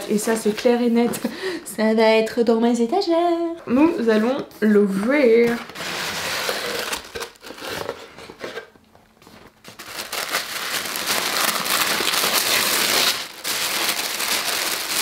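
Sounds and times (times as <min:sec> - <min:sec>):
tissue paper crinkling: 0:09.2 - 0:15.0.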